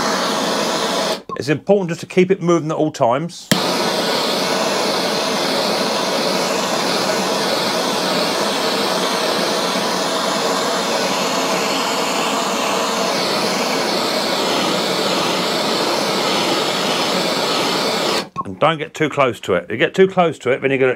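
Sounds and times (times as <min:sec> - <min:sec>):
blowtorch hissing roar: 0:00.0 - 0:01.3, 0:03.5 - 0:18.4.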